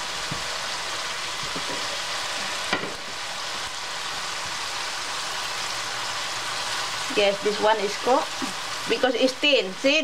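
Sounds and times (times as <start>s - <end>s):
food sizzling in a pan: 0.0s - 10.0s.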